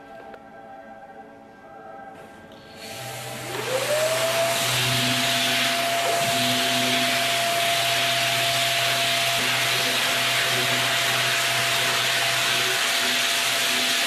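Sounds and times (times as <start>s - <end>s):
dust extractor whine: 2.7s - 14.0s
orbital sander on wood: 2.8s - 14.0s.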